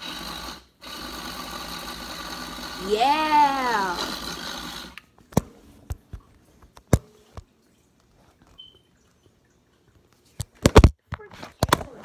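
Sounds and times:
toy car motor whirring: 0:00.0 - 0:05.0.

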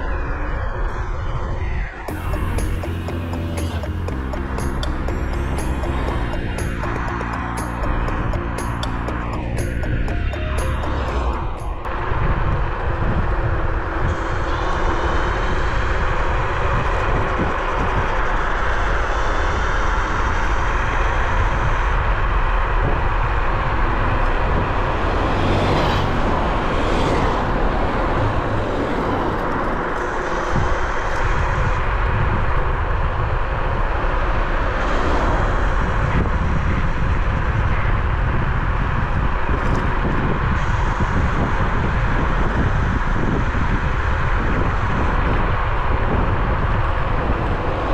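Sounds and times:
faint high whine: 0:00.0 - 0:25.0
wind rushing over microphone: 0:00.0 - 0:47.9.

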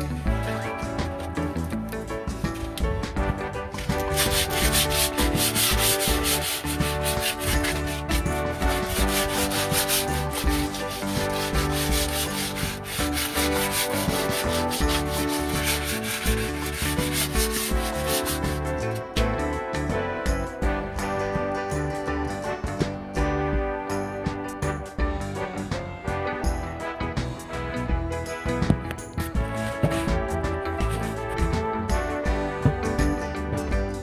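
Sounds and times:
sandpaper rasping on metal pipe: 0:03.8 - 0:19.1, 0:29.2 - 0:31.5.

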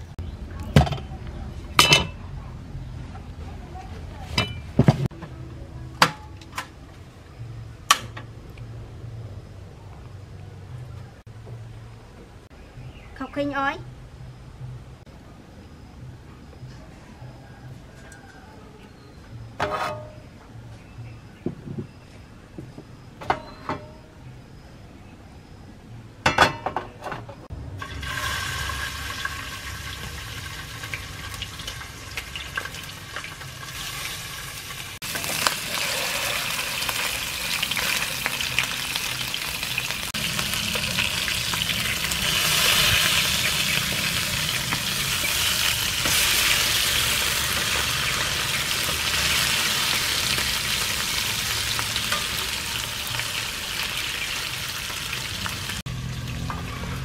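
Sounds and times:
fish sizzling in oil: 0:27.8 - 0:56.5.

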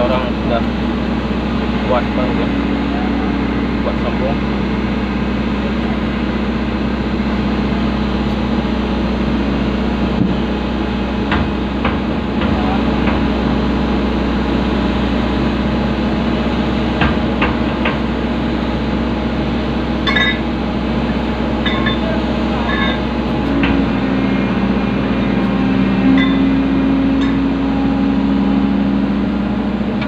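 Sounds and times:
excavator diesel engine humming: 0:00.0 - 0:30.0.

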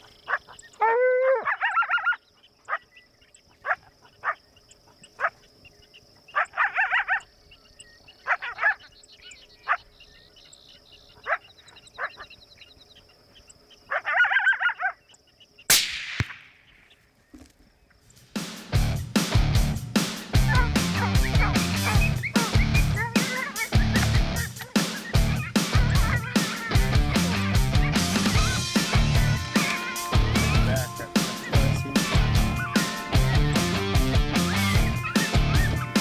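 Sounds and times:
coyotes yipping and howling: 0:00.0 - 0:15.7, 0:20.4 - 0:36.0
coyotes barking: 0:00.0 - 0:17.0, 0:20.3 - 0:36.0
loud sharp crack: 0:15.7 - 0:16.7
guitar music: 0:18.7 - 0:36.0.

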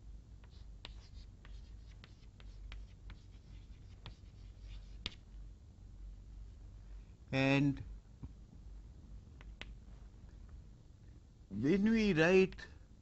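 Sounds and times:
chalk tapping and scratching: 0:00.4 - 0:05.2.

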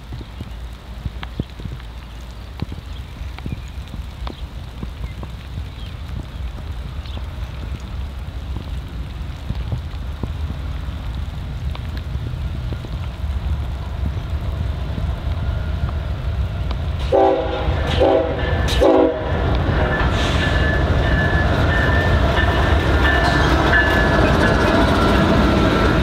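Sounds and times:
freight train rumbling: 0:00.0 - 0:26.0
locomotive horn blasts: 0:17.1 - 0:19.5.

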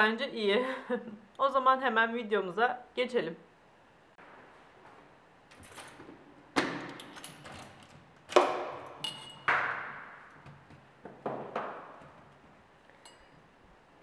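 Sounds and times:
key turning in door lock: 0:06.9 - 0:08.0
keys jingling: 0:07.0 - 0:08.0.

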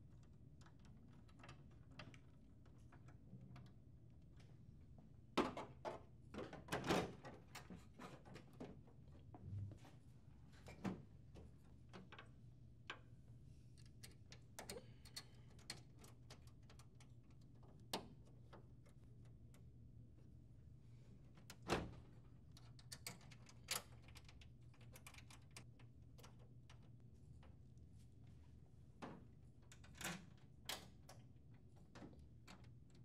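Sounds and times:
faint low hum: 0:07.5 - 0:33.0.

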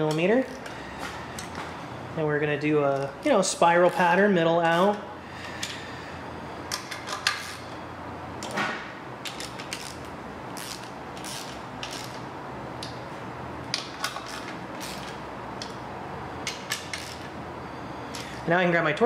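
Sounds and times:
ratchet clicking: 0:09.2 - 0:12.2, 0:13.7 - 0:15.8, 0:16.4 - 0:17.3.

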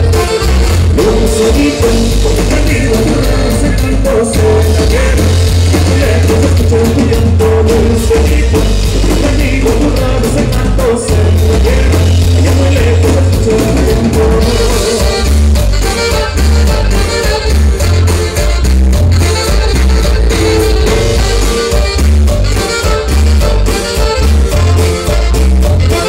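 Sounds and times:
person singing: 0:00.0 - 0:17.6
live band dance music: 0:00.0 - 0:26.0.

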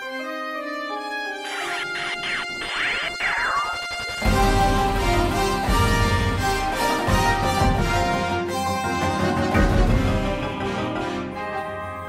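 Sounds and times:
swooping pitch glides: 0:01.4 - 0:04.6.

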